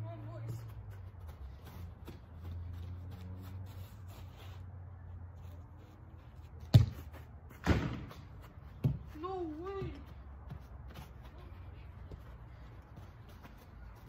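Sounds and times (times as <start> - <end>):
ball kicked hard on turf: 6.7 - 7.0.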